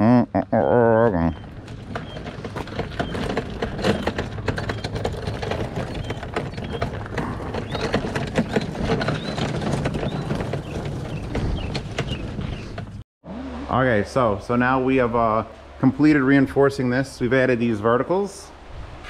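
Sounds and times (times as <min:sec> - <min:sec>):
cart wheels crunching on gravel: 0:01.3 - 0:13.0
load rattling: 0:01.5 - 0:13.0.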